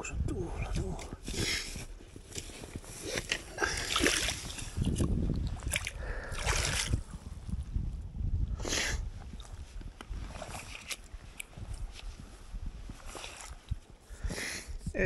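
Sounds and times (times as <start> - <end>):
fish splashing in shallow water: 3.0 - 7.1.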